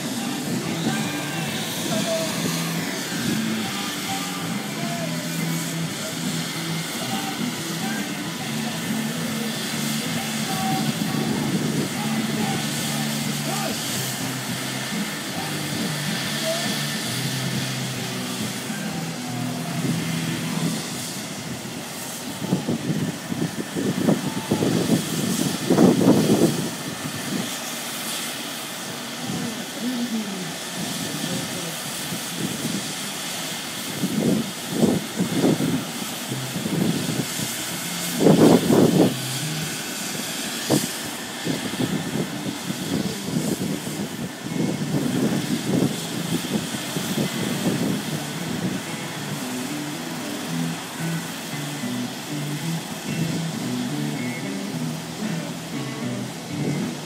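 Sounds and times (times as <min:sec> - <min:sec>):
helicopter turbine whine and rotor: 0:00.0 - 0:57.0.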